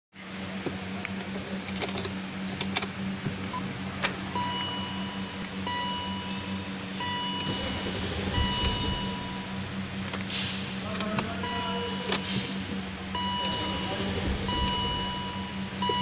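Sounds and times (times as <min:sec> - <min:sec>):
steady low hum: 0:00.2 - 0:16.0
electronic warning beep: 0:04.3 - 0:09.8, 0:10.9 - 0:16.0.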